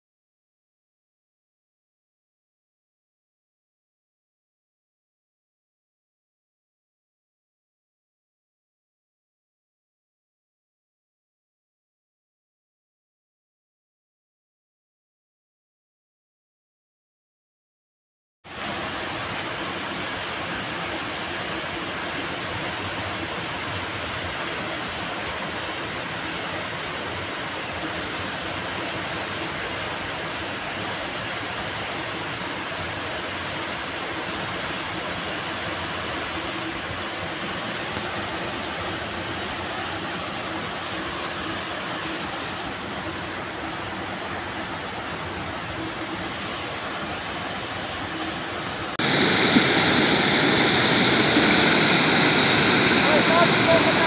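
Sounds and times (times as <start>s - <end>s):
floodwater rushing: 32.9s - 54.0s.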